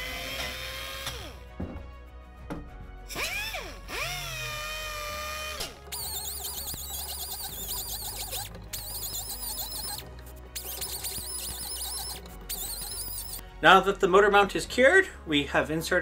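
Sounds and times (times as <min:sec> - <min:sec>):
die grinder whining: 0:00.0 - 0:01.4, 0:03.1 - 0:13.4.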